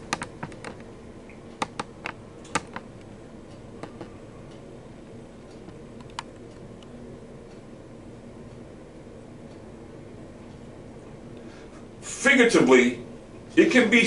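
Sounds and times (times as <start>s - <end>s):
sharp clicks and taps: 0.0s - 2.9s, 5.5s - 6.6s
low room hum: 0.0s - 14.0s.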